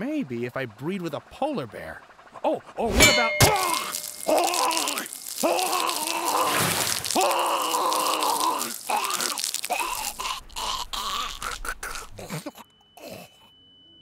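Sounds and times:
blood dripping and spurting: 0:03.4 - 0:12.5
cartoon creature choking groans: 0:03.5 - 0:13.5.

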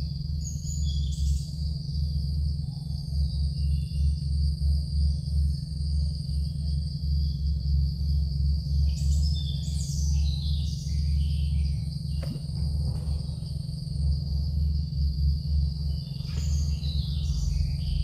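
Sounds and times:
high-pitched insect drone: 0:00.0 - 0:18.0
low pulsing rumble: 0:00.0 - 0:18.0
short knock: 0:12.2 - 0:13.2.

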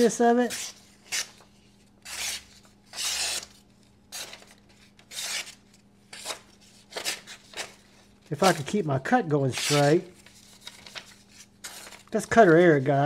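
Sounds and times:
knife slicing paper: 0:02.0 - 0:07.8, 0:09.5 - 0:13.0.

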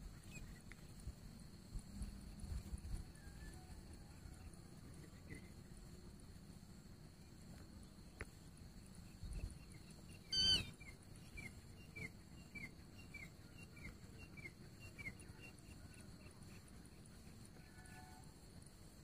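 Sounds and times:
bird calling harsh notes: 0:10.3 - 0:10.7.

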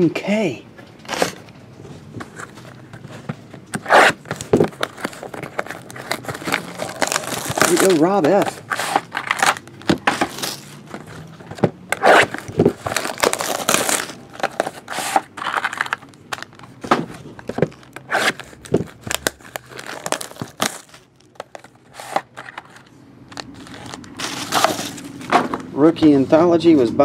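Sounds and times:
foil card packs crinkling: 0:02.1 - 0:25.3.

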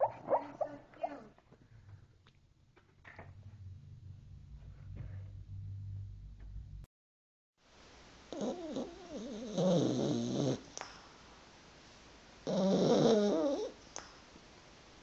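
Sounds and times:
dog snoring: 0:08.3 - 0:10.7, 0:12.4 - 0:13.8.

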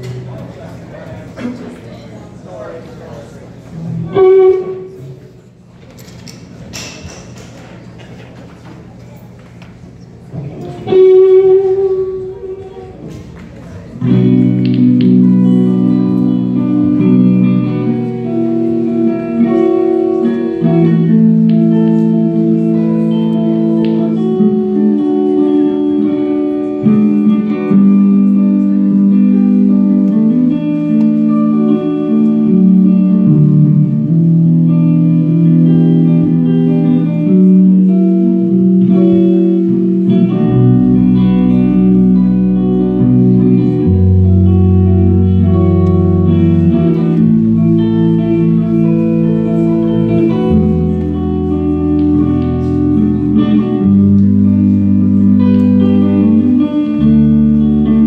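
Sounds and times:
electric guitars: 0:00.0 - 0:01.9, 0:03.5 - 0:07.6, 0:09.4 - 0:58.0
deep bass notes: 0:13.8 - 0:58.0.

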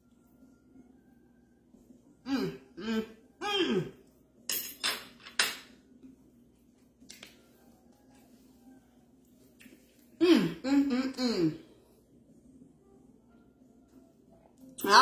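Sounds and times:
person humming while eating: 0:02.2 - 0:04.2, 0:10.2 - 0:11.8.

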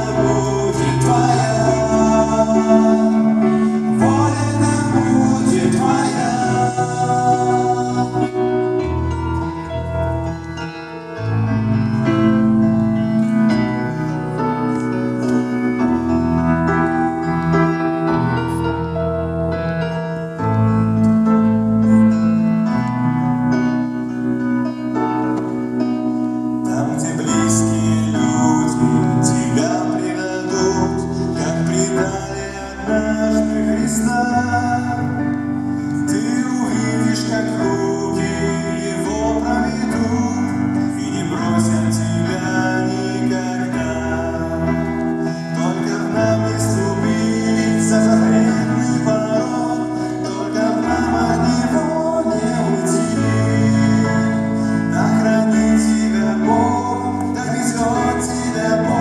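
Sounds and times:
person singing: 0:00.0 - 0:20.1, 0:26.4 - 0:59.0.

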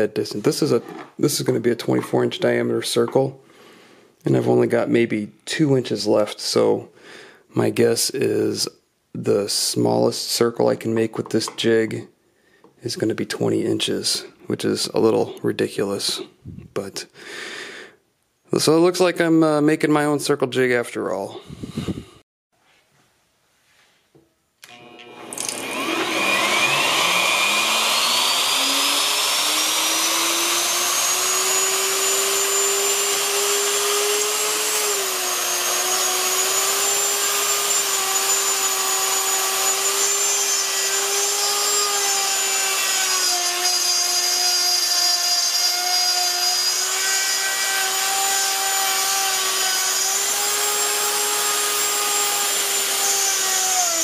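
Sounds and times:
router motor whining: 0:24.6 - 0:54.0.

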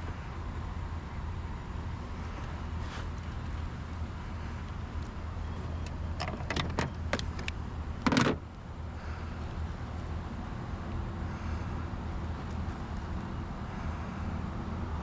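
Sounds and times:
fishing gear clicking and knocking: 0:05.6 - 0:08.4.

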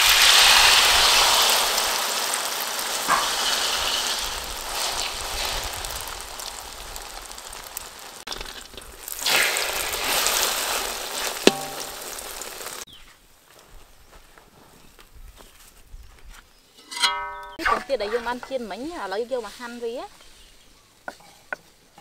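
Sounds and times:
omelette sizzling in oil: 0:00.0 - 0:12.9
metal spatula scraping: 0:16.8 - 0:18.6, 0:21.1 - 0:21.6.

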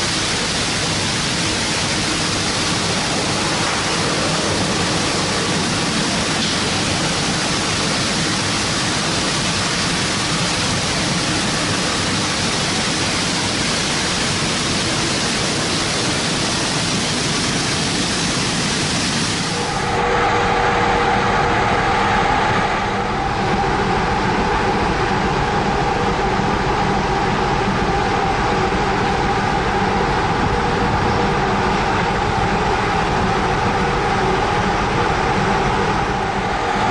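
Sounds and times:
conveyors carrying fish: 0:00.0 - 0:36.9
machine hum with held tones: 0:19.4 - 0:36.9.

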